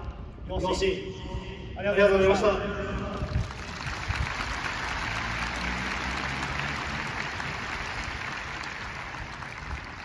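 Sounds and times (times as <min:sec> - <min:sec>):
crowd applauding: 0:03.2 - 0:10.0.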